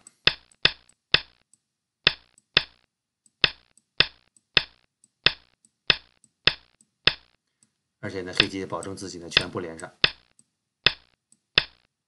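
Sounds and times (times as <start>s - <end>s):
sharp clacks: 2.1s - 7.4s, 8.3s - 11.9s.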